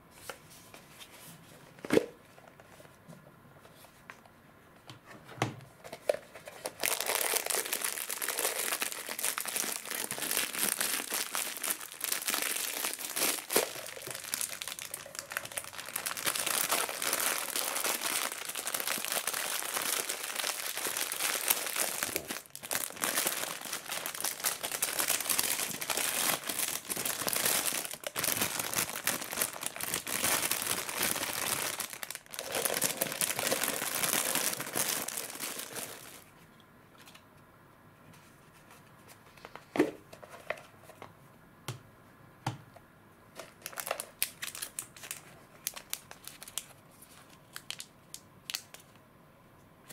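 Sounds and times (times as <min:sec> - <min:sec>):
plastic bag crinkling: 0:06.1 - 0:36.3, 0:43.5 - 0:47.9.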